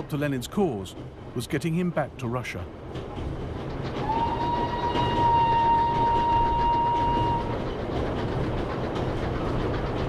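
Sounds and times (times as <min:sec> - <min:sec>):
train wheels clattering: 0:00.0 - 0:10.0
train whistle: 0:04.0 - 0:07.6.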